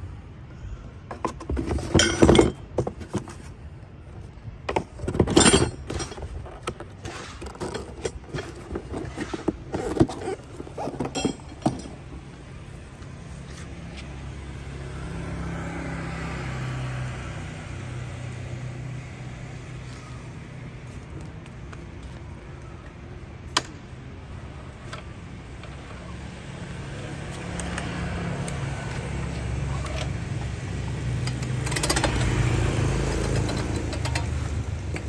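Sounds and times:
cardboard box and metal parts handled: 0:01.1 - 0:13.6
vehicle engine drone: 0:12.1 - 0:35.0.

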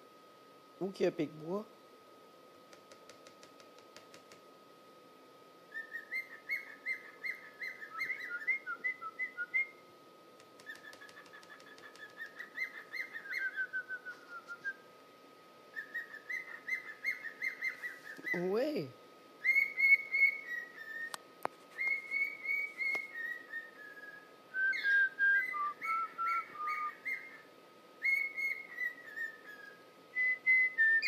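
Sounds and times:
cockatiel whistling and chirping: 0:05.7 - 0:09.8, 0:10.6 - 0:14.8, 0:15.7 - 0:18.5, 0:19.4 - 0:31.0.

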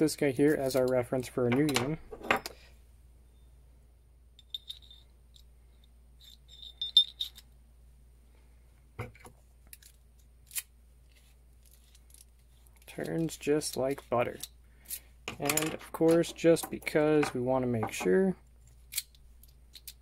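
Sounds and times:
metal key and lock clinking: 0:06.2 - 0:07.5.

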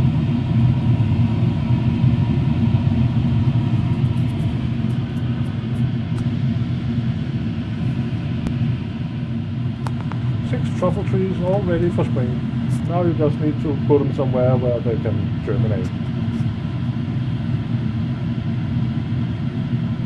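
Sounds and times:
blower fan running: 0:00.0 - 0:20.0.

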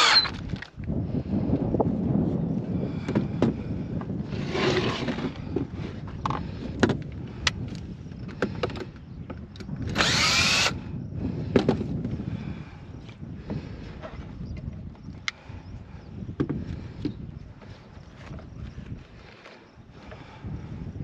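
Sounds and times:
cordless drill spinning up: 0:00.0 - 0:00.7, 0:09.7 - 0:10.9.

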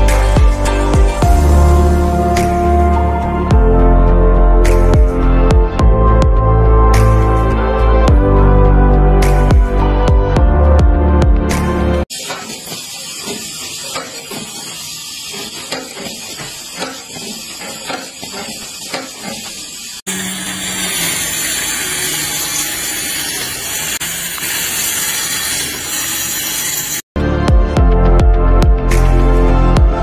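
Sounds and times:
angle grinder cutting wood: 0:12.1 - 0:27.0
assembly machine hissing: 0:12.1 - 0:27.0
machine clicks and clacks: 0:12.2 - 0:19.6.

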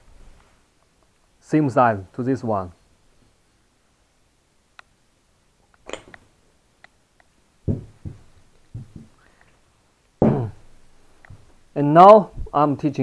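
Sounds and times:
metal fixture knocking on table: 0:07.7 - 0:09.1.

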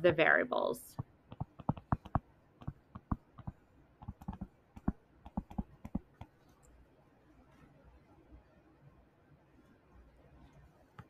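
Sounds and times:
stylus tapping on touchscreen: 0:01.0 - 0:06.4.

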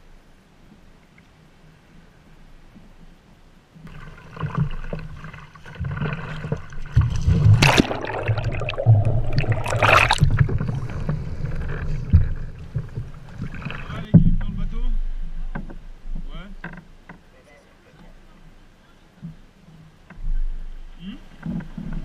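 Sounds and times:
loud water splashes: 0:03.9 - 0:14.1
water sloshing around kayak: 0:03.9 - 0:14.1
low rumbling: 0:03.9 - 0:17.1.

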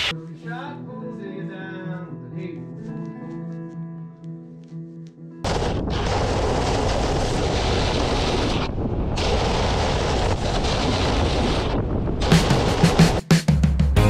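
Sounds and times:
wind buffeting camera: 0:05.4 - 0:13.2
snowboard scraping over snow: 0:05.9 - 0:13.2.

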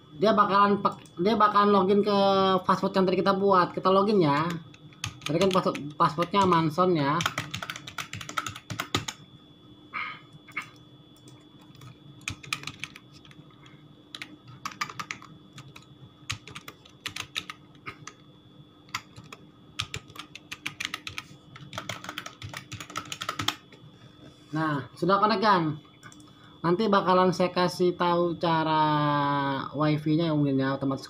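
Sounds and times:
faint steady hum: 0:00.0 - 0:31.0
keyboard typing: 0:04.3 - 0:09.2, 0:11.2 - 0:13.4, 0:14.1 - 0:18.2, 0:18.9 - 0:23.6.

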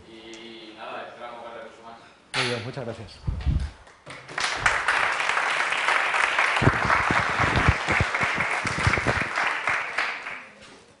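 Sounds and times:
audience applauding: 0:04.1 - 0:10.6.

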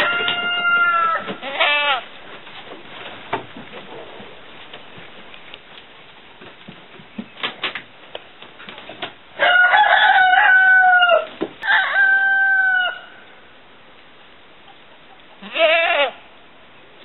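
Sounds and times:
rooster crowing: 0:00.0 - 0:01.3, 0:09.4 - 0:13.2.

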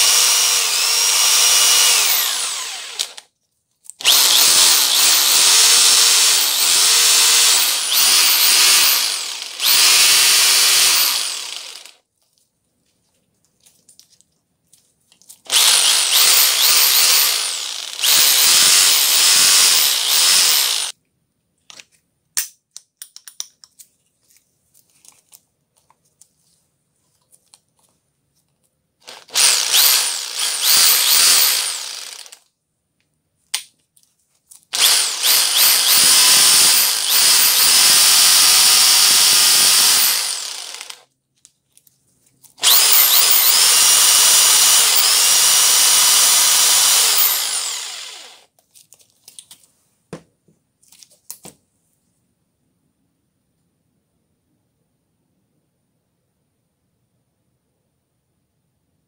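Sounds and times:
rotary hammer motor whining: 0:00.0 - 0:03.2, 0:04.0 - 0:11.9, 0:15.5 - 0:20.9, 0:29.1 - 0:32.4, 0:34.8 - 0:41.0, 0:42.6 - 0:48.5.

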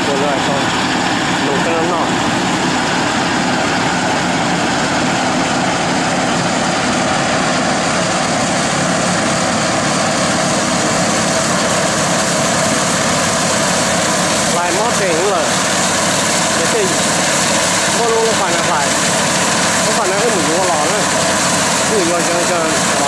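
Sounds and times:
engine humming steadily: 0:00.0 - 0:23.0.

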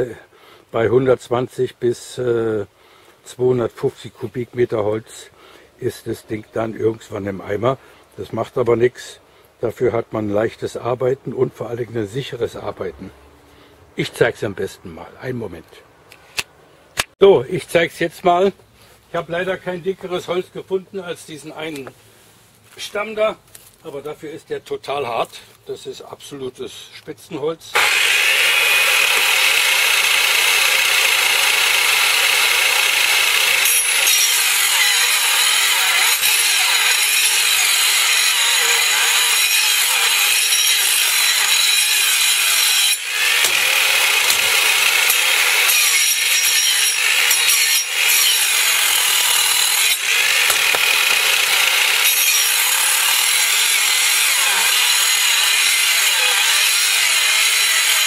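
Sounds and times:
circular saw cutting log: 0:27.8 - 0:58.0.

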